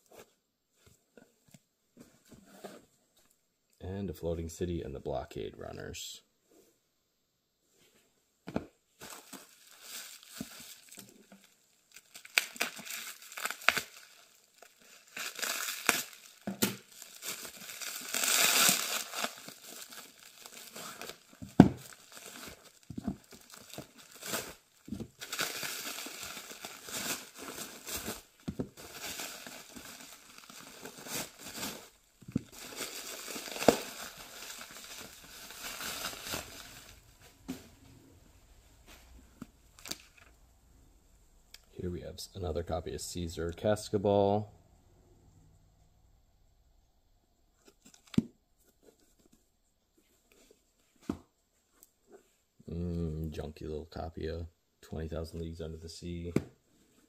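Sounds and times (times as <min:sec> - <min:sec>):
plastic wrapping crinkling and tearing: 0:09.0 - 0:37.6, 0:38.8 - 0:40.4, 0:47.6 - 0:49.4.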